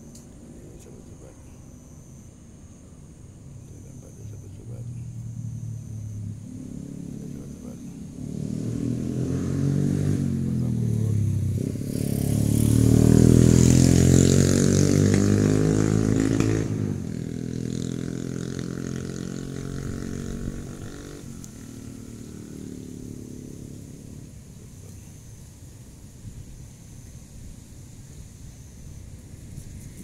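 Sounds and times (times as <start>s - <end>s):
vehicle engine revving: 3.5s - 25.7s.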